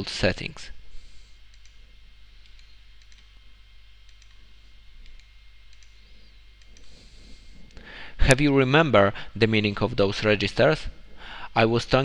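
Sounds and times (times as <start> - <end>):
low electrical hum: 0.0 - 12.0
computer mouse clicks: 1.5 - 1.8, 2.4 - 3.3, 4.0 - 4.4, 5.0 - 6.9.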